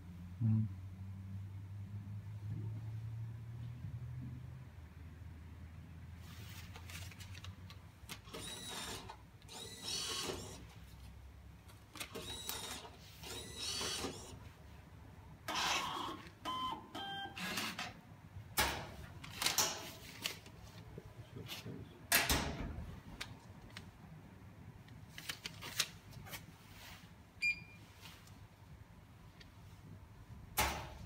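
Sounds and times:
receipt printer running: 8.3s - 10.6s, 12.1s - 14.3s
banknote acceptor motor whirring: 8.4s - 10.6s, 12.2s - 14.3s.

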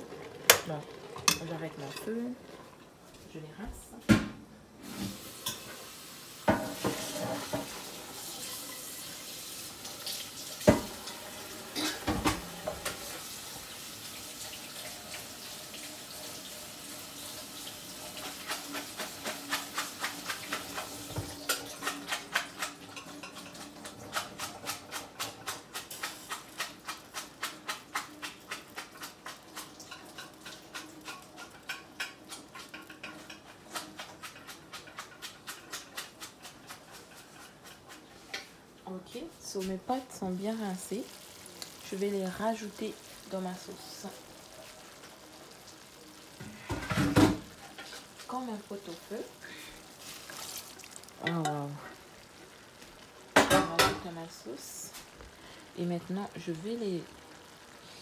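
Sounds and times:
colander knocking: 0.0s - 2.8s, 46.4s - 48.4s
tap water running: 0.0s - 58.0s.

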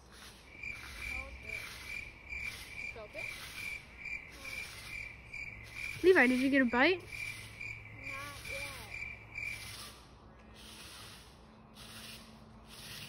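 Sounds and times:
insects trilling: 0.2s - 10.0s.

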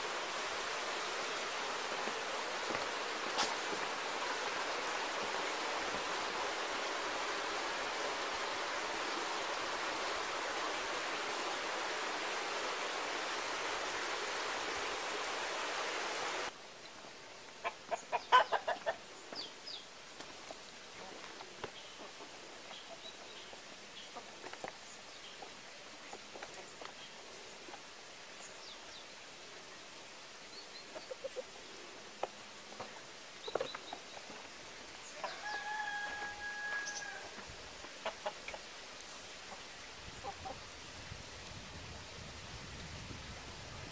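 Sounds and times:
chicken clucking: 17.6s - 19.0s, 30.9s - 31.5s
small birds chirping: 17.9s - 20.3s, 21.0s - 27.5s, 32.8s - 35.4s.

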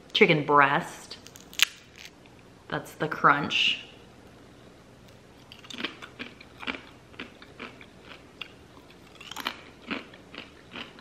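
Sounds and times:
crunchy chewing: 5.1s - 11.0s.

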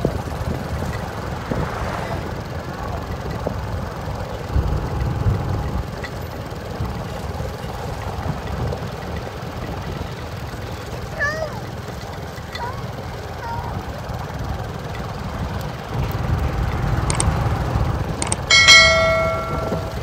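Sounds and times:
vehicle rumbling: 0.0s - 20.0s
wind buffeting microphone: 13.7s - 20.0s.

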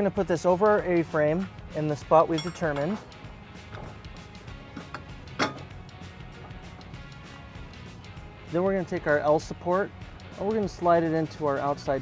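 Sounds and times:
background music: 0.0s - 12.0s
metal bracket click: 2.3s - 4.0s, 4.8s - 5.8s.

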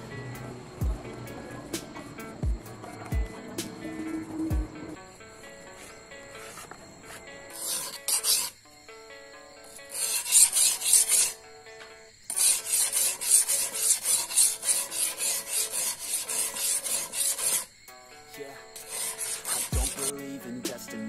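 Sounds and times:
blade scraping on whetstone: 5.8s - 8.6s, 9.6s - 11.4s, 12.3s - 17.8s, 18.7s - 20.1s.

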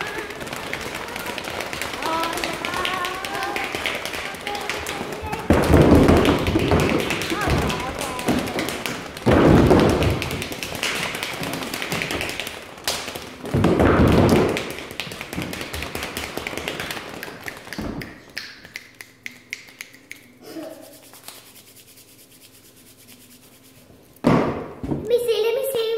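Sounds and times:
hands rubbing: 0.0s - 13.5s, 14.4s - 24.2s
stamping and patting on wooden floor: 0.0s - 18.2s
rapid patter of hand taps: 0.0s - 23.8s.

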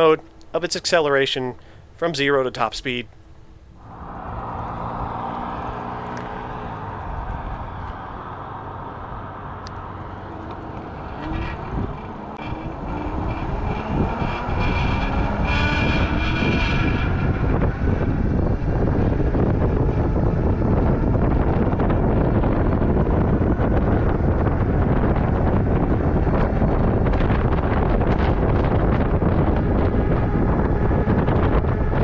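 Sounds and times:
wind rush on microphone: 3.8s - 32.0s
electric bike motor whine: 17.2s - 32.0s.

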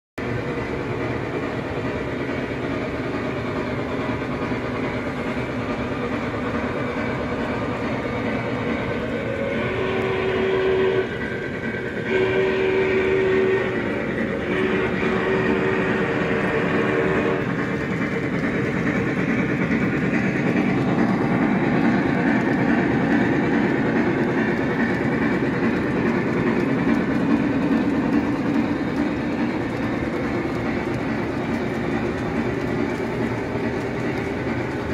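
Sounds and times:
model train rumbling on track: 0.2s - 34.9s
model train whistle: 9.4s - 11.2s, 12.0s - 17.6s.

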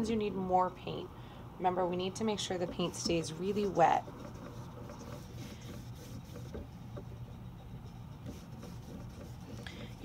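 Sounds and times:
low room hum: 0.0s - 10.0s
paintbrush swishing on paper: 2.4s - 10.0s.

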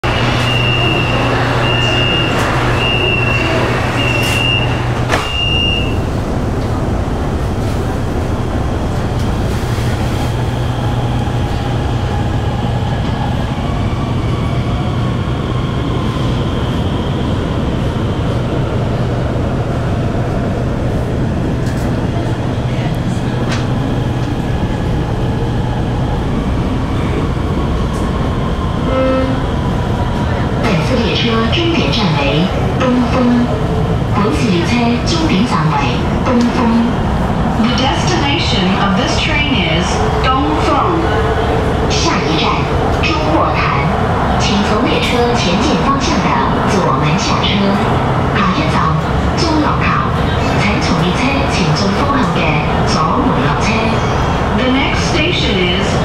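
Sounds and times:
train equipment hum: 0.0s - 56.0s
high warning beep: 0.4s - 6.0s.

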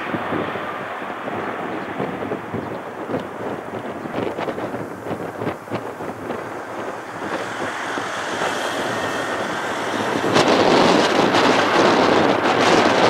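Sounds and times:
jet engines rumbling: 0.0s - 13.0s
wind buffeting microphone: 0.0s - 13.0s
faint high whine: 2.6s - 12.7s.

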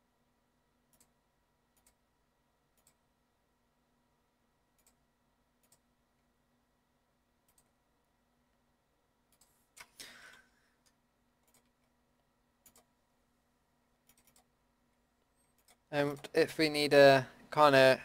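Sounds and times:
faint steady hum: 0.0s - 18.0s
computer mouse clicks: 0.9s - 2.0s, 2.7s - 3.1s, 4.7s - 5.9s, 7.4s - 7.8s, 9.3s - 12.0s, 12.6s - 12.9s, 14.0s - 14.5s, 15.4s - 16.3s.

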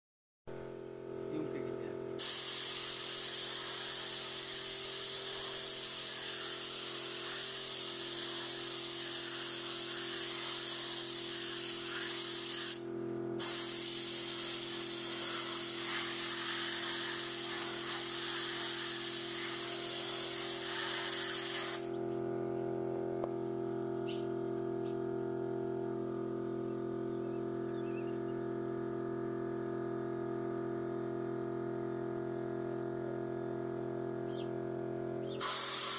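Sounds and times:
steady multi-tone hum: 0.9s - 35.9s
paint spray gun hissing: 2.2s - 21.9s, 35.4s - 35.9s.

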